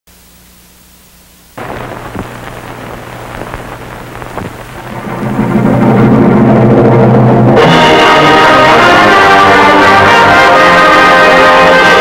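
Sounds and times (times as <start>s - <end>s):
steady noise with low hum: 0.1s - 9.7s
orchestral music with brass: 7.6s - 12.0s.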